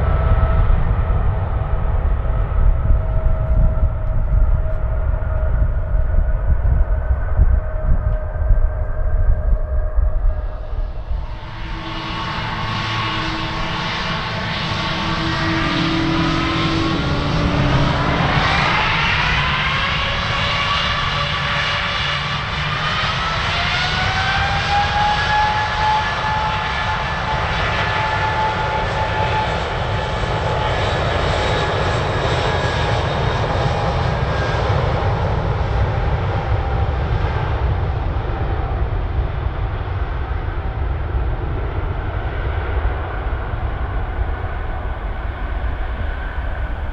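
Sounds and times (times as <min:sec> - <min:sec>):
jet engines spooling up whine: 0:00.0 - 0:46.9
low jet rumble: 0:00.0 - 0:46.9.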